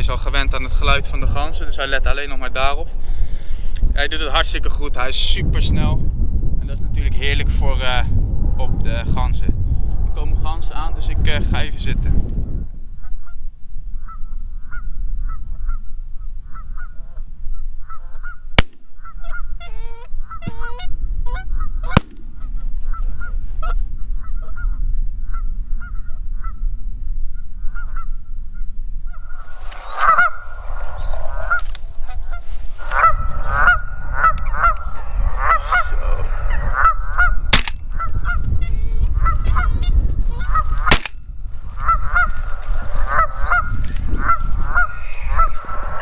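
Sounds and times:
geese honking: 16.5 - 26.6, 29.1 - 38.4, 39.2 - 41.0, 41.8 - 46.0.

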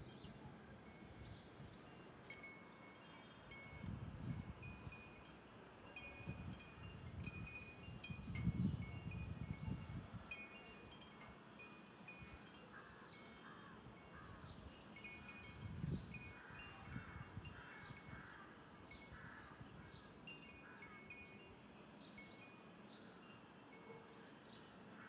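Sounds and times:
wind chimes tinkling: 0.0 - 19.6, 20.2 - 24.4.

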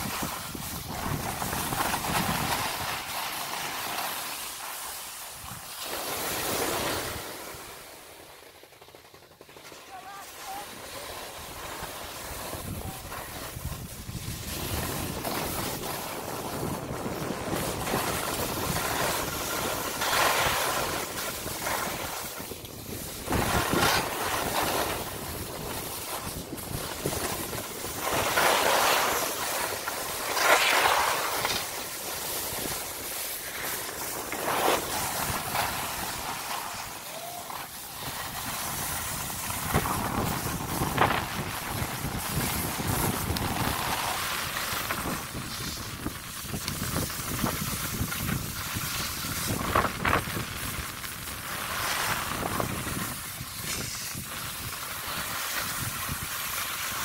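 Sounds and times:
wind on microphone: 0.0 - 3.2, 12.2 - 29.2, 34.5 - 57.0
skis sliding on snow: 0.0 - 57.0.

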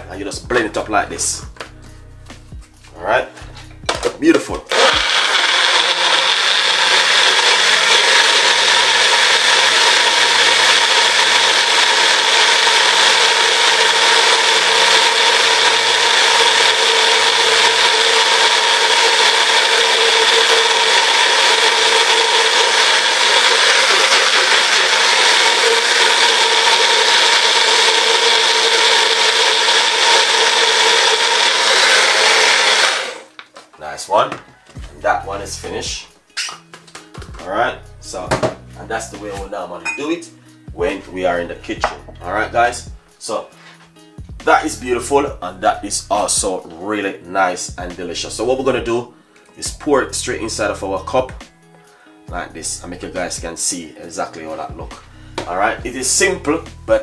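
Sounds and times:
blender running: 4.7 - 33.4.

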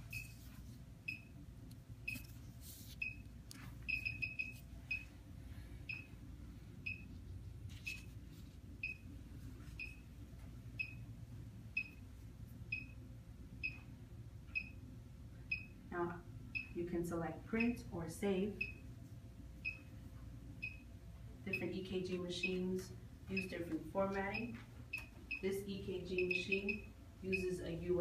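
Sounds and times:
heart monitor beeping: 0.0 - 1.4, 2.0 - 5.2, 5.8 - 6.2, 6.8 - 7.2, 8.8 - 10.1, 10.8 - 11.1, 11.7 - 12.1, 12.7 - 13.0, 13.6 - 13.9, 14.5 - 14.8, 15.5 - 15.8, 16.5 - 16.8, 18.6 - 18.9, 19.6 - 19.9, 20.6 - 20.9, 23.3 - 23.6, 24.2 - 27.6
low steady hum: 0.0 - 28.0.

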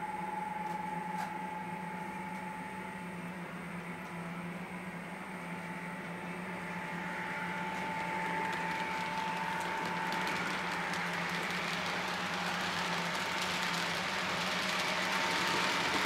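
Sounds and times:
model train electric whine: 0.0 - 16.0
rail clicks: 8.1 - 16.0.

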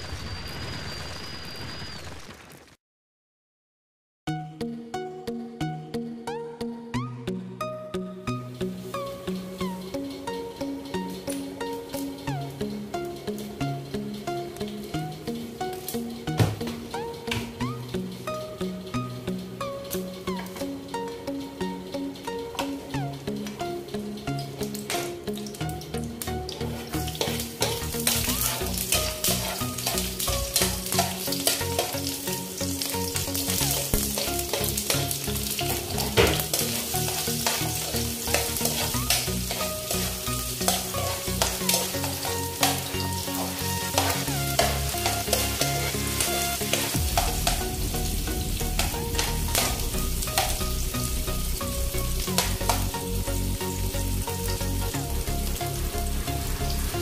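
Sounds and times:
garlic and onion sizzling in oil: 8.3 - 57.0
metal spoon scraping a pan: 26.4 - 47.7, 48.7 - 50.8.

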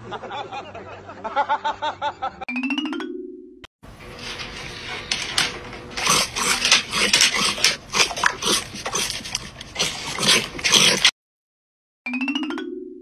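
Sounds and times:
dog licking and snuffling: 4.2 - 11.1.

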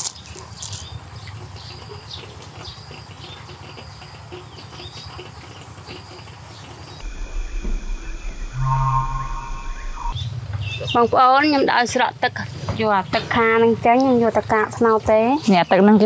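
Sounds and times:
bird-like chirps: 6.5 - 11.2
faint low rumble: 7.0 - 10.8.

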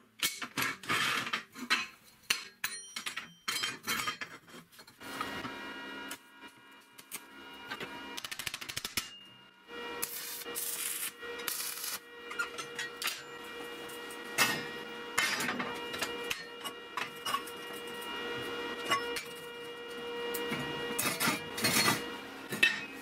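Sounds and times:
metal scraping on metal: 10.2 - 18.1.

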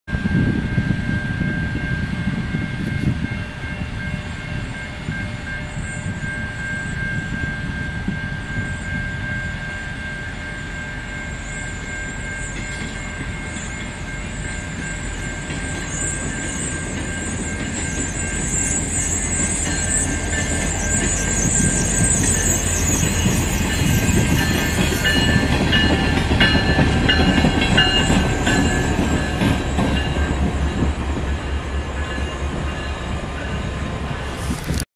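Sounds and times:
diesel locomotive rumble: 0.1 - 34.8
train wheel squeal: 0.1 - 34.8.

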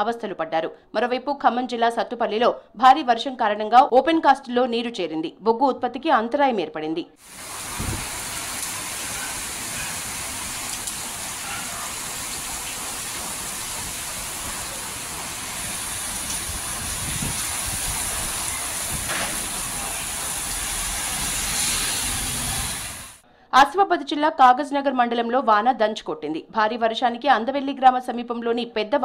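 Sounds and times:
heavy rain pouring: 7.2 - 23.2.

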